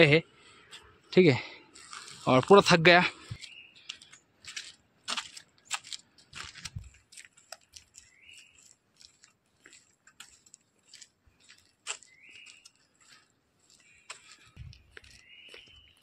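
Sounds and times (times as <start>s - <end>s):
bird calling: 3.0s - 4.2s, 7.9s - 8.8s, 12.0s - 16.0s.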